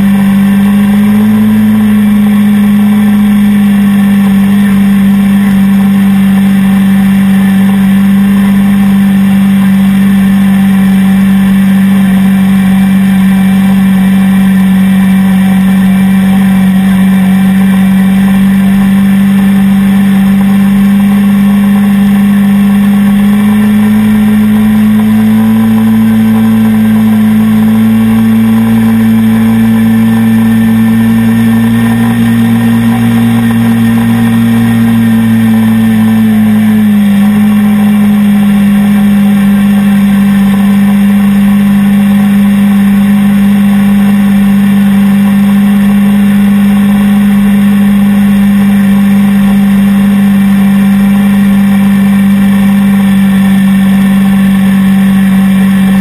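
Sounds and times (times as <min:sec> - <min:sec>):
quad bike engine running: 0:00.0 - 0:56.0.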